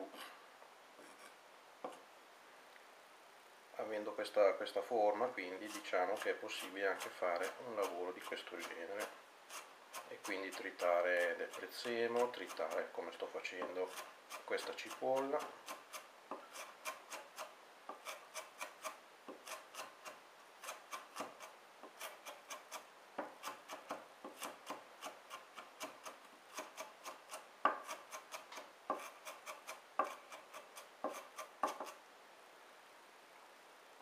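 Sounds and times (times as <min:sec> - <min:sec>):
knife chopping on wooden board: 0:20.9 - 0:32.0.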